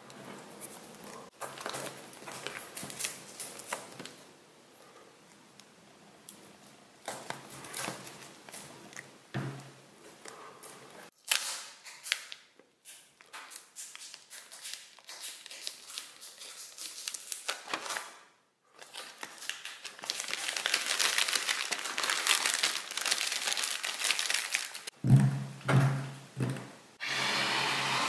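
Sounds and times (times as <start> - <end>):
plastic wrap crinkling: 0.0 - 4.3, 7.0 - 9.1, 11.1 - 25.0
plastic wrap crackles and clicks: 0.9 - 4.2, 11.1 - 25.0.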